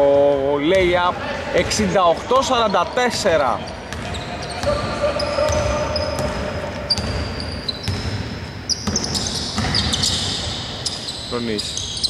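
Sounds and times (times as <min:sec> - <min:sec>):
sneaker squeaks: 0:02.2 - 0:12.0
basketball bouncing on hardwood: 0:08.8 - 0:09.9.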